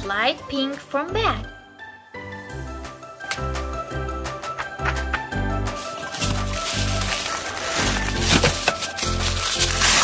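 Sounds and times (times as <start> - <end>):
packing paper crinkling: 5.7 - 10.0.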